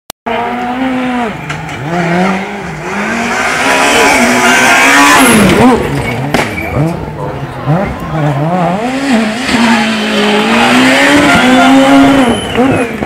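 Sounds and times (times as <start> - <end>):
car engine revving hard: 0.3 - 13.0.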